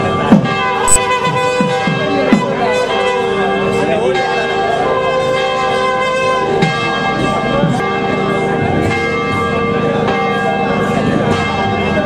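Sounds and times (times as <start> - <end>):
temple bells ringing: 2.8 - 12.0.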